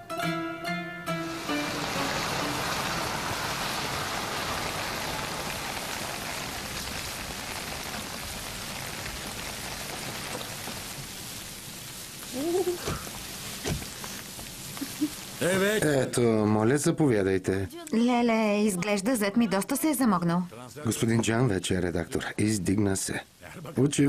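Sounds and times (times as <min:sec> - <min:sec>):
steady rain falling: 0:01.3 - 0:16.2.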